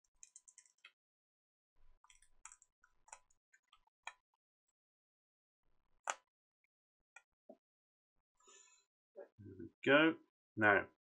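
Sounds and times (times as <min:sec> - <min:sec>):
small parts ticking and clicking: 0:00.0 - 0:01.0.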